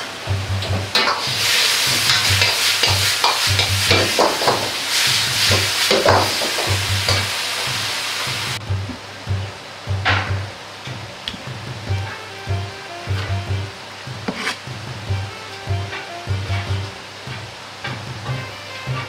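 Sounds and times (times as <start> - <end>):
background music with low beat: 0.0 - 1.0, 1.8 - 19.0
food sizzling in a wok: 0.0 - 8.6, 11.5 - 19.0
metal ladle scraping a wok: 0.9 - 7.4, 14.3 - 14.7.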